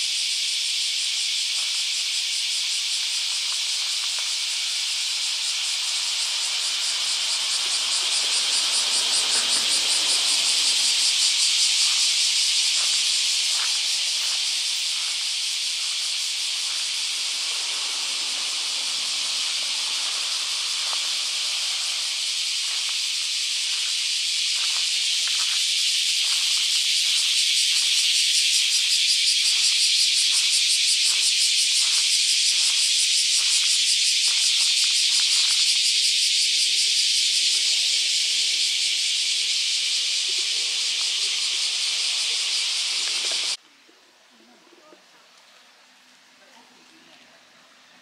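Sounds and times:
cicadas buzzing: 0:00.0 - 0:43.6
footsteps on gravel: 0:02.7 - 0:05.4, 0:09.2 - 0:35.6.

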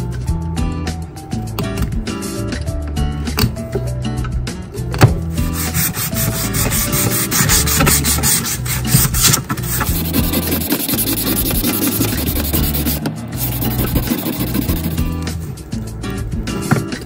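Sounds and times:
hand rubbing wooden handle: 0:05.4 - 0:15.2.

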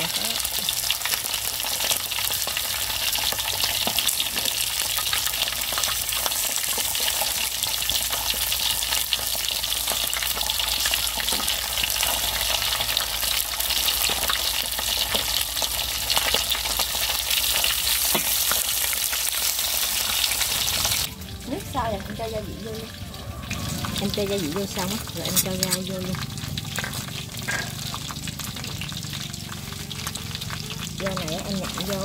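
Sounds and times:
fish sizzling in oil: 0:00.0 - 0:32.0
metal tongs and spatula scraping: 0:24.8 - 0:27.8.

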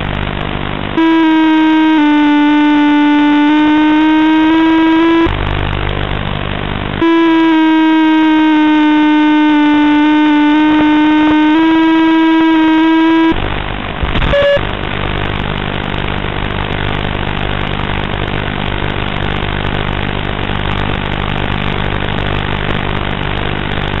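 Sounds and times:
steady hiss with low hum: 0:00.0 - 0:24.0
held electronic tone: 0:01.0 - 0:06.2, 0:07.0 - 0:13.5, 0:14.1 - 0:14.7.

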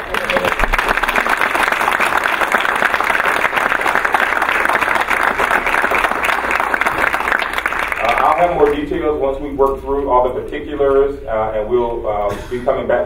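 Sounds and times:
people clapping: 0:00.0 - 0:09.0.

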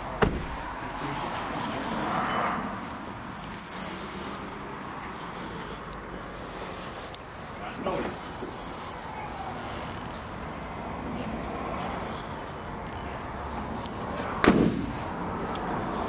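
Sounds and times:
steady background noise: 0:00.0 - 0:16.0
loud thump: 0:00.2 - 0:00.7, 0:14.4 - 0:15.0.

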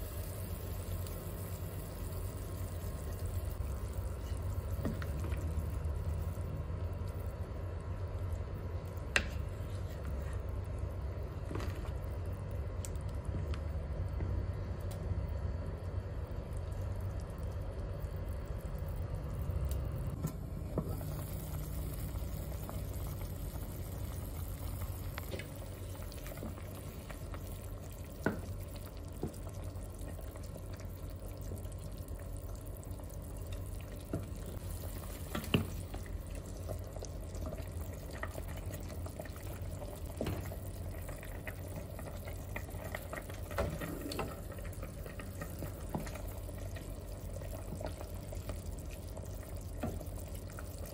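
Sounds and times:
steady low hum: 0:00.0 - 0:50.9
broth sloshing in pot: 0:16.5 - 0:50.9.

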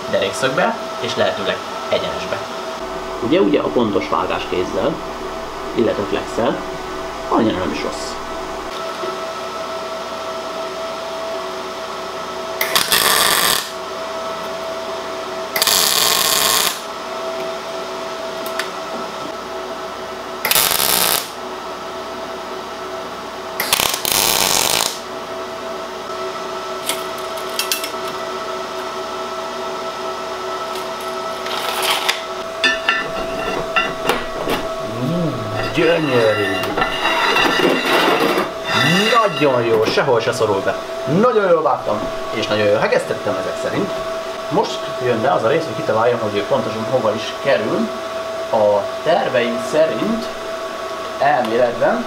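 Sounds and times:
welder cooling fan humming: 0:00.0 - 0:52.0
welding arc hissing: 0:12.6 - 0:13.8, 0:15.6 - 0:16.9, 0:20.5 - 0:21.4, 0:23.6 - 0:25.0.

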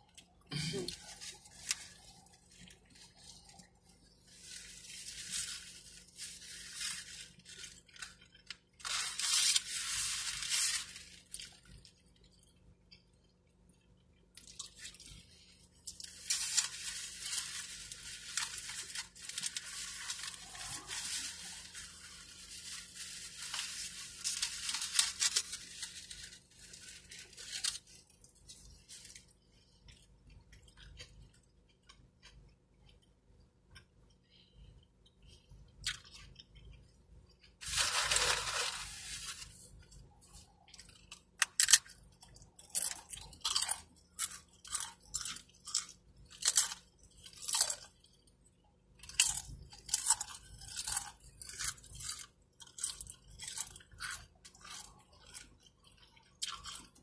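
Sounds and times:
foil wrapper crinkling: 0:00.7 - 0:12.2, 0:14.4 - 0:29.4, 0:37.6 - 0:47.9
person chewing: 0:11.0 - 0:34.2, 0:34.8 - 0:48.3, 0:49.0 - 0:57.0.

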